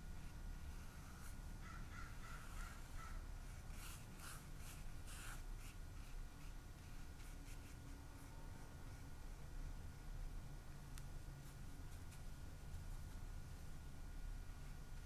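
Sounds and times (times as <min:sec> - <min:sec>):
paintbrush swishing on paper: 0:02.4 - 0:08.4, 0:11.4 - 0:13.3.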